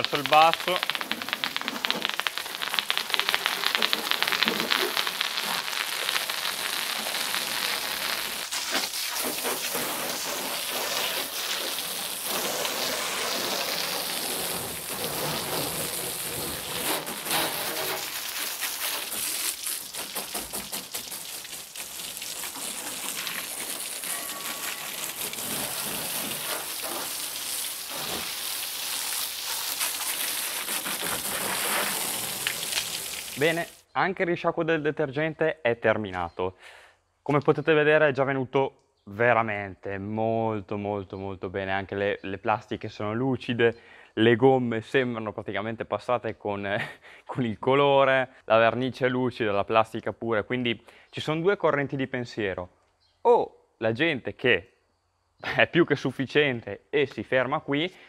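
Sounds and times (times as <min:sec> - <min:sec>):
hose water jet splashing: 0:00.0 - 0:33.9.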